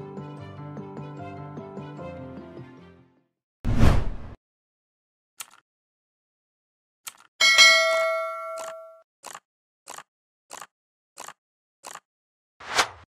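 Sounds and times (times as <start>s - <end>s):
swish: 3.7s - 4.4s, 12.6s - 13.0s
bright bell-like ding: 7.4s - 9.0s.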